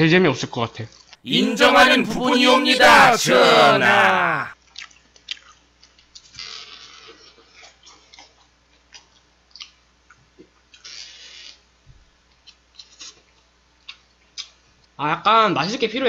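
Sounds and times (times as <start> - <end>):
close chewing and mouth sounds: 4.8 - 6.0, 7.6 - 9.8.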